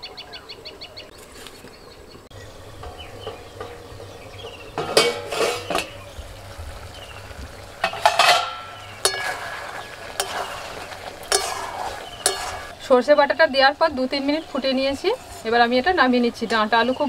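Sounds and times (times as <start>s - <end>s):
steel plate clattering on wok: 2.8s - 6.0s, 7.8s - 10.6s, 11.2s - 12.7s
metal spatula clinking on pan: 7.8s - 9.6s, 11.3s - 12.7s.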